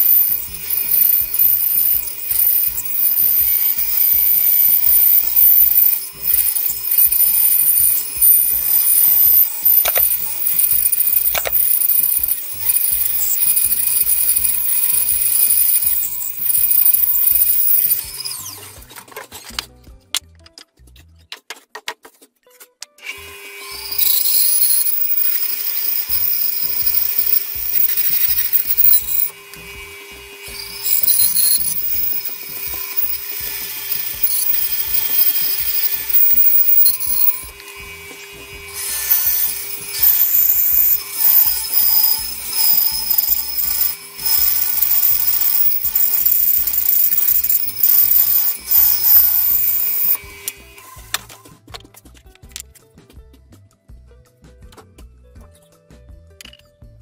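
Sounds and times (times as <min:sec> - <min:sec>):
bandsaw cutting wood: 0:00.0 - 0:19.0, 0:23.0 - 0:51.3.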